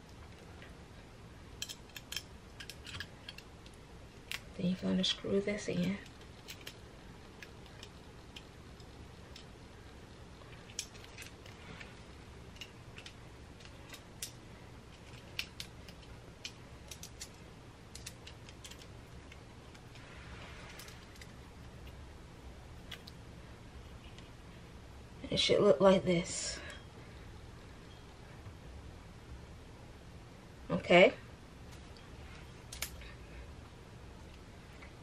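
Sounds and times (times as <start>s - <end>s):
faint low hum: 0.0s - 35.0s
small metal clicks and taps: 1.6s - 4.4s, 12.5s - 19.9s.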